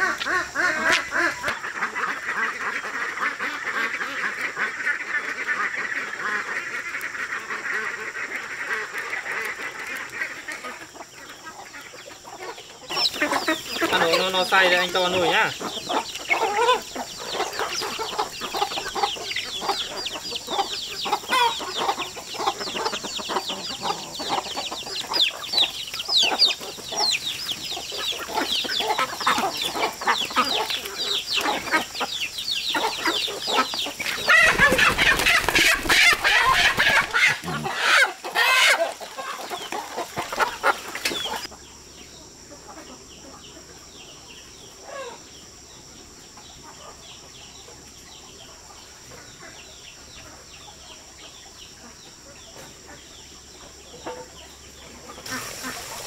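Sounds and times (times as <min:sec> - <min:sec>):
chickens clucking: 0:00.0 - 0:56.0
rooster crowing: 0:34.3 - 0:38.9.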